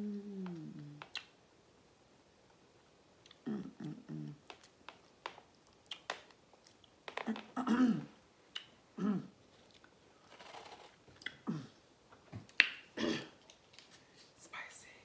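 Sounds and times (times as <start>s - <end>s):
wet chewing and mouth clicks: 0.8s - 1.4s, 4.3s - 7.5s, 8.5s - 8.8s
short voiced throat sounds: 3.3s - 4.4s, 9.0s - 9.4s.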